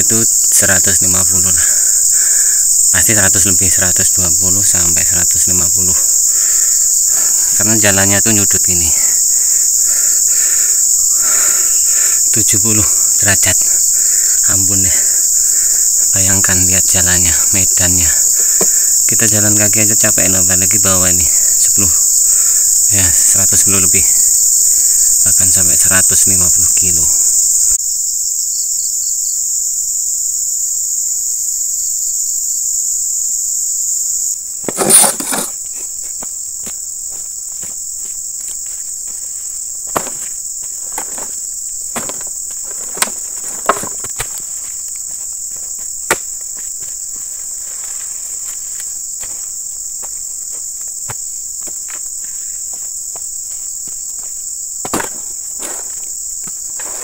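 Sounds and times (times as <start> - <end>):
high-pitched insect drone: 0.0 - 57.0
fruit bunches thumping: 34.6 - 37.8, 39.8 - 46.9, 53.1 - 57.0.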